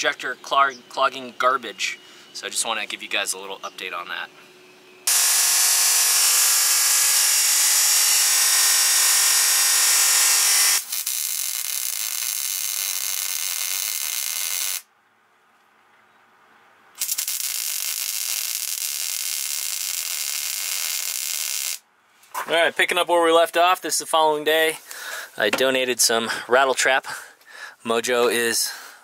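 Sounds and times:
chop saw cutting steel: 0:05.1 - 0:14.8
welder sizzling: 0:05.1 - 0:14.8, 0:17.0 - 0:21.8.

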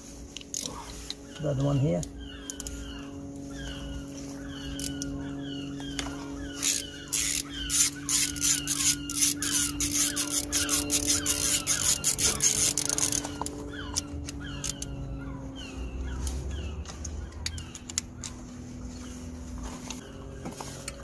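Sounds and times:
steady low hum: 0:00.0 - 0:21.0
screwdriver squeaks: 0:06.5 - 0:15.0.

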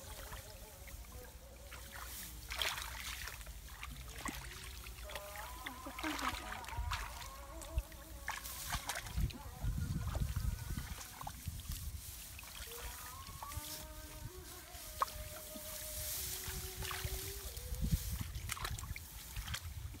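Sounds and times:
hands splashing in muddy water: 0:01.7 - 0:09.4, 0:16.1 - 0:20.0.

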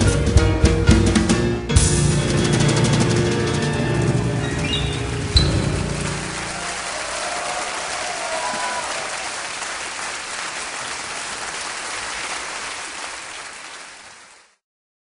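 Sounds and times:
applause: 0:04.9 - 0:14.6.

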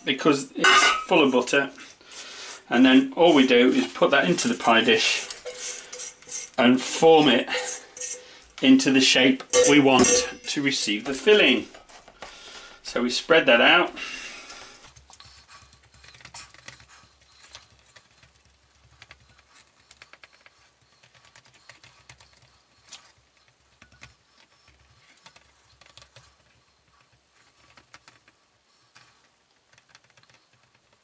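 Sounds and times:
spatula tapping and scraping dish: 0:05.0 - 0:08.6.

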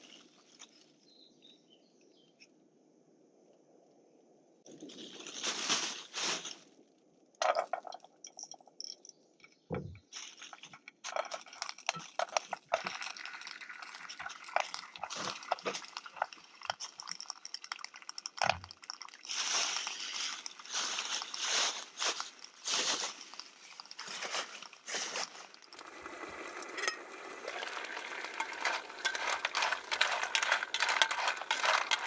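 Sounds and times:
plastic bag crinkling: 0:04.7 - 0:06.6, 0:10.2 - 0:32.0
clam shells clicking together: 0:14.2 - 0:19.3.

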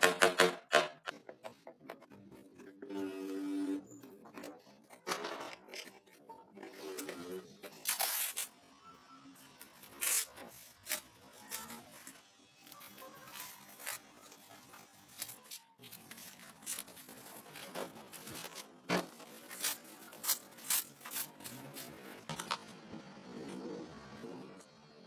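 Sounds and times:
adhesive tape ripping: 0:07.7 - 0:08.5, 0:09.8 - 0:12.1, 0:12.8 - 0:22.0.

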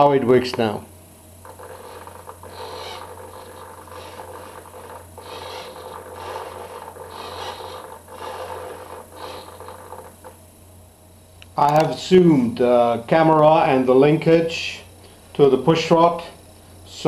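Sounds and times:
servo gear-motor whirring: 0:01.4 - 0:10.4.

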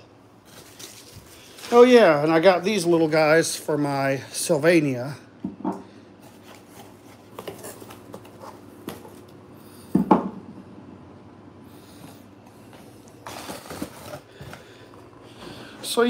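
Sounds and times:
faint steady hum: 0:00.0 - 0:16.0
cardboard rustle: 0:06.2 - 0:09.2, 0:13.0 - 0:14.8.

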